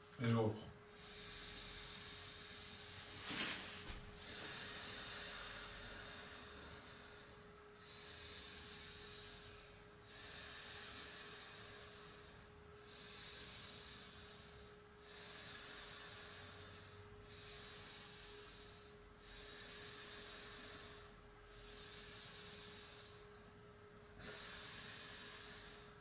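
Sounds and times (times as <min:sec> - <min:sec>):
faint steady hum: 0:00.0 - 0:26.0
person breathing slowly: 0:00.9 - 0:26.0.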